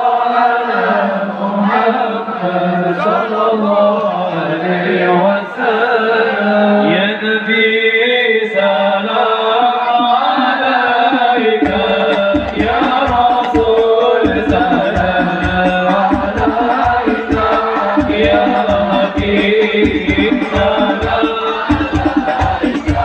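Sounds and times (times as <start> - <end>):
devotional chanting song: 0.0 - 23.0
low drum beat: 10.1 - 23.0.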